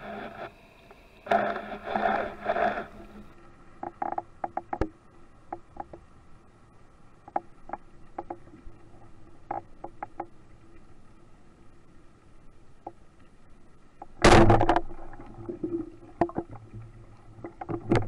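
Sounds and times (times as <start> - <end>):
muffled underwater rushing: 0.0 - 3.4
faint underwater hiss: 0.0 - 18.0
sharp underwater clicks and knocks: 1.3 - 6.1, 7.2 - 8.7, 9.3 - 10.4, 14.0 - 18.0.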